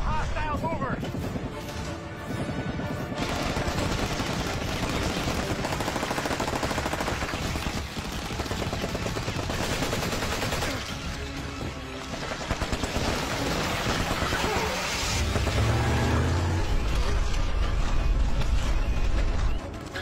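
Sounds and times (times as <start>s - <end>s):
automatic rifle gunfire: 3.2s - 11.0s.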